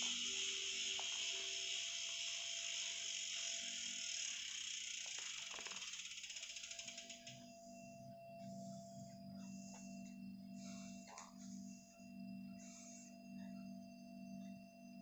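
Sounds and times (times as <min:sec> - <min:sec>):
bike freehub ratchet ticking: 0:00.0 - 0:07.5.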